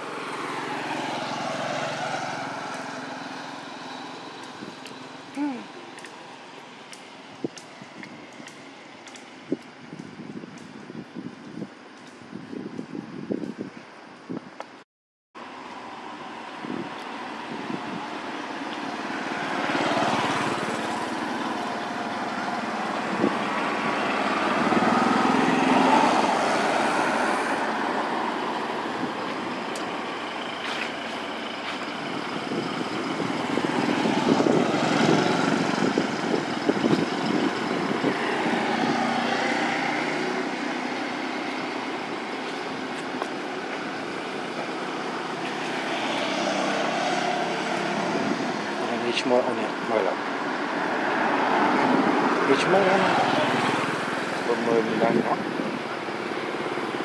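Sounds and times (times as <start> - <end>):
traffic passing: 0.0 - 14.4, 15.4 - 57.0.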